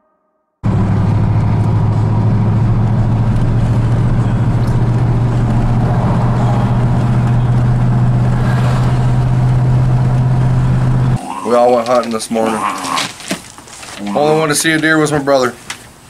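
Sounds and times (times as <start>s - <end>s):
engine drone inside car: 0.6s - 11.2s
tyres and wind rushing: 0.6s - 11.2s.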